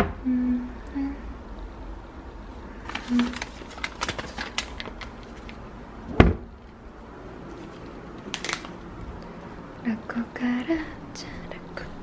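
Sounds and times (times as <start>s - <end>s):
packets rustling: 2.8s - 5.6s, 7.4s - 8.9s
cupboard door shutting: 6.1s - 6.5s.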